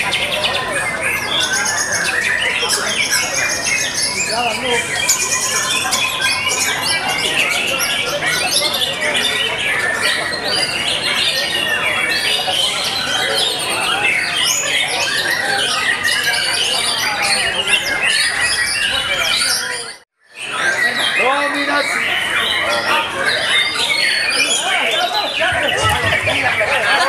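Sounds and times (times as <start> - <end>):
other songbirds singing: 0.0 - 27.0.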